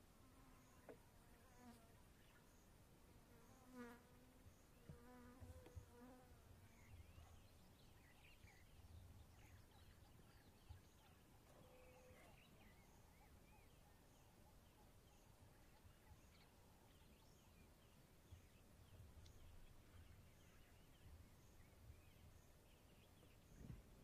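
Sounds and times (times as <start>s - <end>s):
faint bird chirps: 5.6s - 24.0s.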